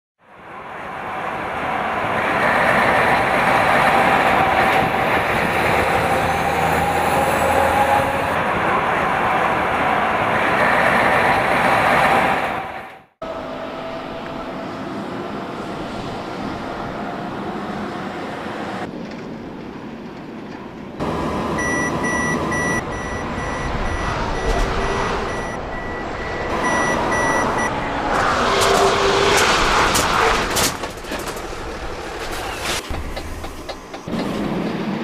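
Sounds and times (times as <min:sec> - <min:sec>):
heavy truck running: 0:01.1 - 0:35.0
high beeping warning: 0:21.0 - 0:27.8
truck emergency braking: 0:21.0 - 0:30.7.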